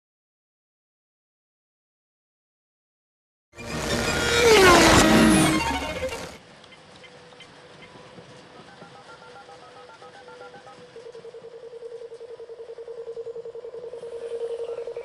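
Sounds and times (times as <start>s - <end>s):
two-tone keypad beeps: 8.6s - 10.8s.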